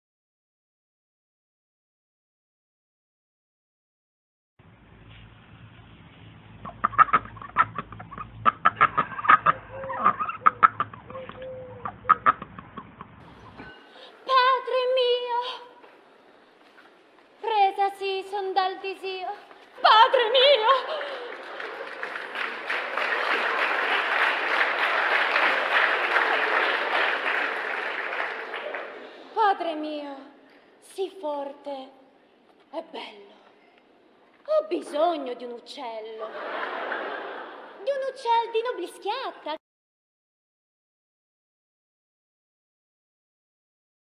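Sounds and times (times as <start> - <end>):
low steady hum: 4.6 - 14.3
poultry calling: 6.6 - 13.8
audience applauding: 20.6 - 29.4.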